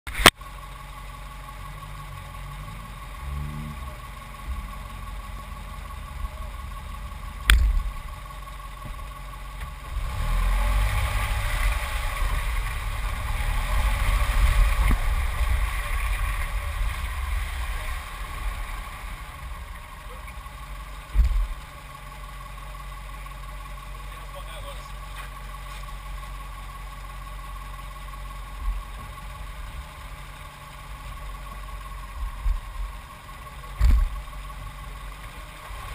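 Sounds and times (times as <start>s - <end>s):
car engine running: 0.1s - 35.9s
tyres on wet dirt: 2.5s - 35.9s
low thump: 7.4s - 8.0s, 21.1s - 21.6s.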